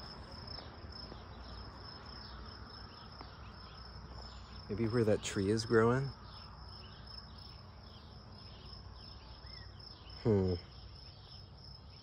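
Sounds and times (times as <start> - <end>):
cricket trill: 0.0 - 12.0
low outdoor hum: 0.0 - 12.0
man saying hmm: 10.2 - 10.6.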